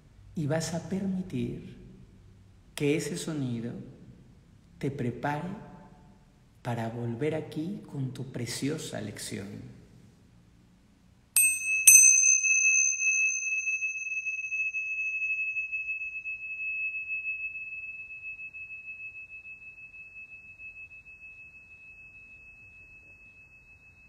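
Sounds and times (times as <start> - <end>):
small cymbals ringing: 11.4 - 24.0.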